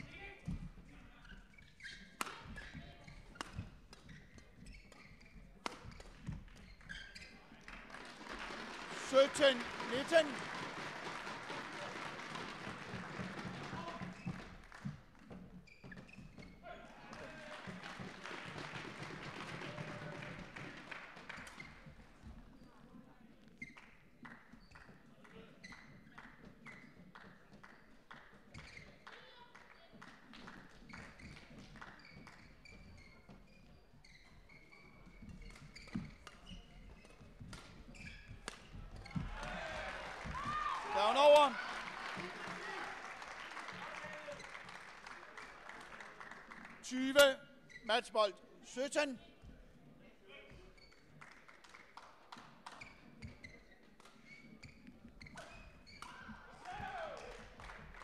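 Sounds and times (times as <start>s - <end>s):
shoes squeaking: 0.0s - 7.6s, 13.4s - 17.4s, 25.6s - 29.4s, 30.8s - 41.6s, 52.7s - 57.4s.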